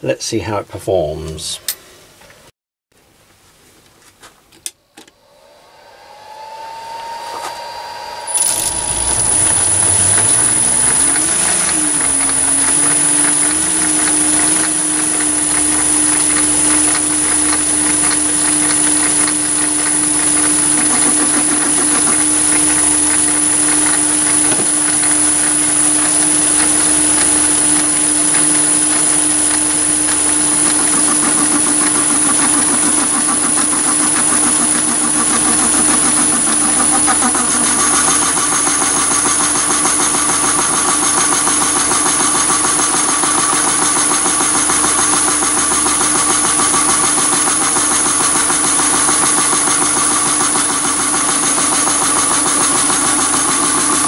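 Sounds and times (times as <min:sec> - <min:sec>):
lathe running with high whine: 0:05.2 - 0:54.0.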